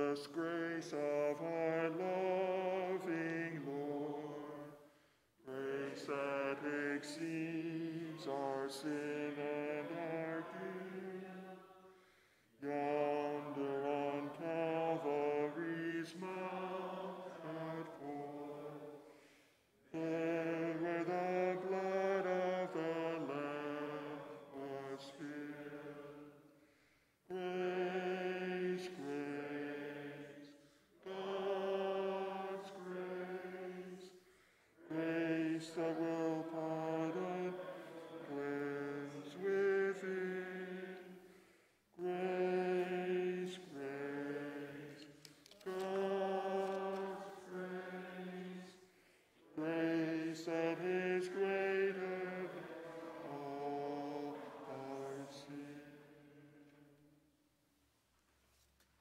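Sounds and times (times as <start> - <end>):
man singing a hymn: 0.0 - 4.8, 5.5 - 11.5, 12.6 - 19.0, 19.9 - 26.0, 27.3 - 30.3, 34.8 - 41.1, 42.0 - 44.8, 49.5 - 56.0.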